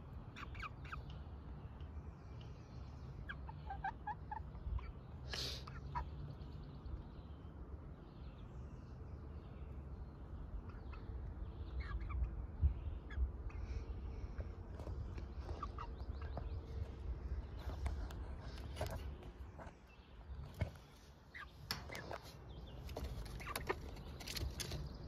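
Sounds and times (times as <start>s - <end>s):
chickens clucking: 0.1s - 1.8s, 2.4s - 6.6s, 10.4s - 25.0s
steady low rumble: 6.0s - 25.0s.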